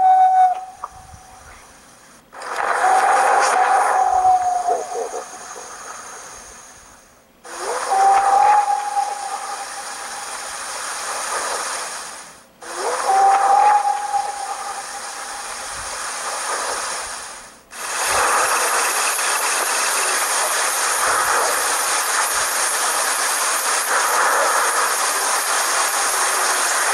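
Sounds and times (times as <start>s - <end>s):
steady hiss: 0.0s - 26.9s
rising call: 2.6s - 6.0s, 7.5s - 10.4s, 12.6s - 15.4s.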